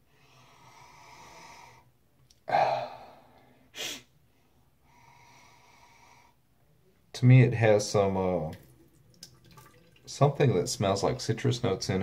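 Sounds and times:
man breathing out: 2.5 - 4.0
man sniffing: 2.5 - 4.1.

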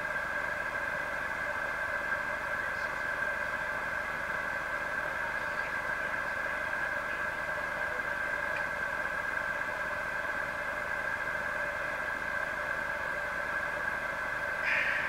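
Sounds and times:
steady tonal hum: 0.0 - 15.0
hiss: 14.6 - 15.0.

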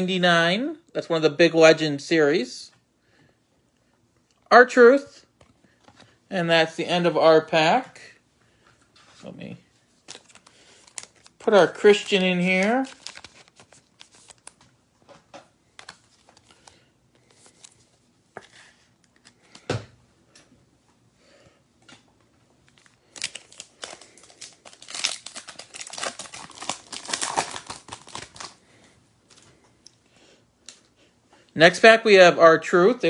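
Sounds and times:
foil wrapper tearing and crinkling: 10.1 - 14.6, 22.7 - 28.6.

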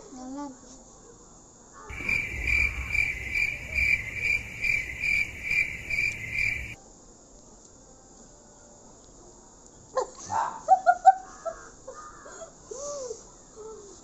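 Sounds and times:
high pulsing cricket-like chirp: 1.9 - 6.8.

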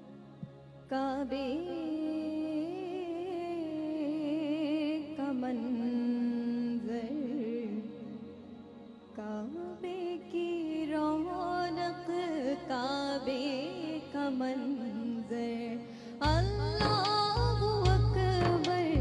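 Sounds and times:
woman singing into a microphone: 0.9 - 19.0.

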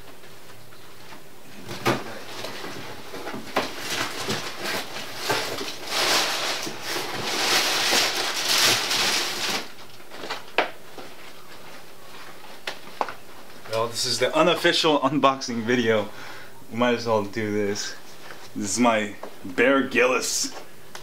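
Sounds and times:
packaging rustling: 1.7 - 13.7.

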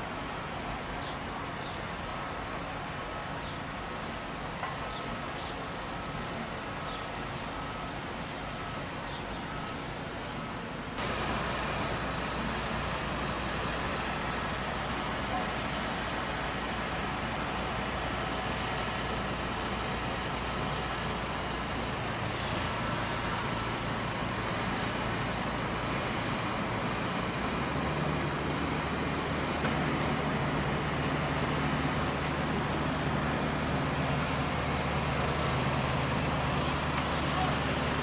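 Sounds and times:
heavy vehicle engine running: 0.0 - 38.0
traffic noise: 0.0 - 38.0.

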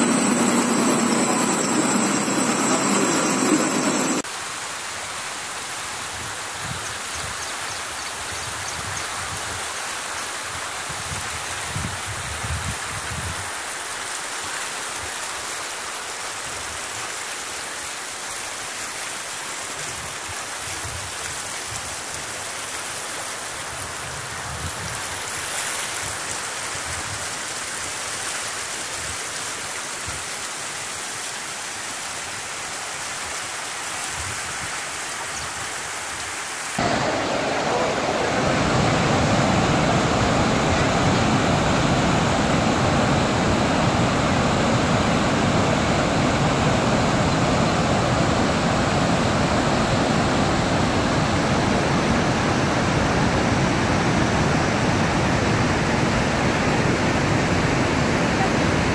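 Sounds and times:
waterfall rushing: 0.0 - 5.0, 36.7 - 58.9
floodwater rushing in stream: 0.0 - 8.3, 9.1 - 58.9.

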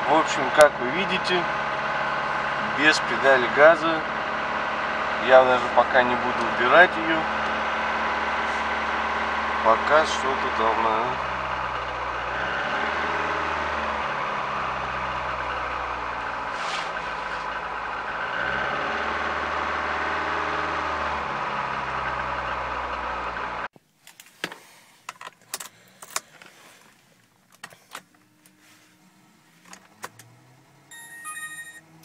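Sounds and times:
car engine idling fast: 0.0 - 23.7.

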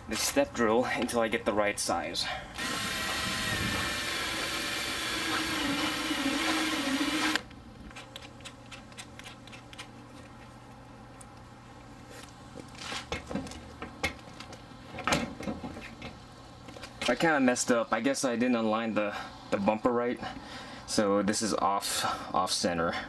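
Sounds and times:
power drill drilling plastic: 2.6 - 7.4.

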